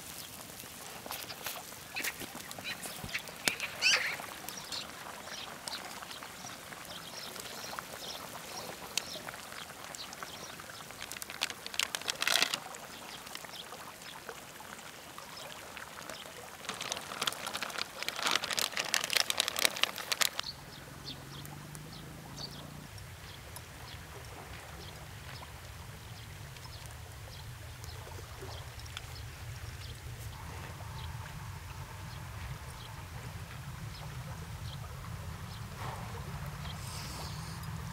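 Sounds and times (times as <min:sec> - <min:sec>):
liquid splashing: 0:00.0 - 0:20.5
broth simmering: 0:00.0 - 0:37.9
crackling campfire: 0:00.0 - 0:37.9
low steady hum: 0:20.4 - 0:37.9.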